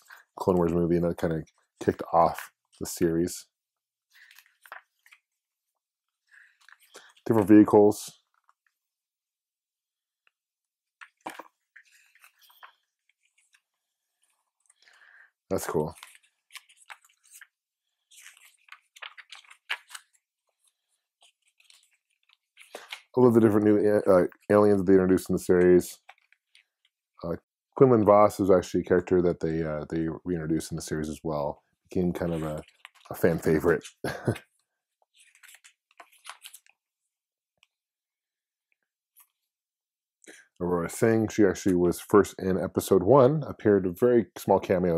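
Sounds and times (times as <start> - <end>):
book pages turning: 4.1 - 8.8, 10.2 - 27.0, 32.0 - 36.9.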